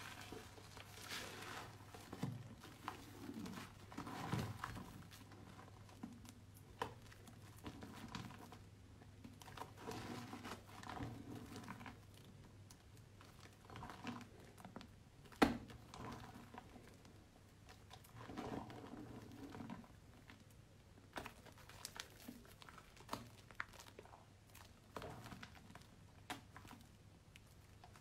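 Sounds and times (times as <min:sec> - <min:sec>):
wet soap paste squelching: 0:00.0 - 0:28.0.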